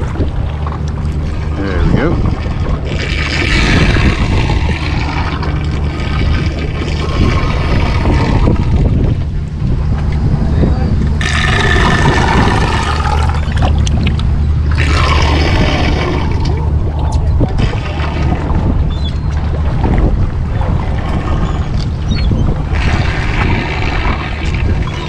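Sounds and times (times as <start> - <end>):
boat engine drone: 0.0 - 25.0
rushing splashing water: 2.4 - 8.9, 11.2 - 14.1, 14.7 - 16.6, 17.6 - 20.0, 22.6 - 25.0.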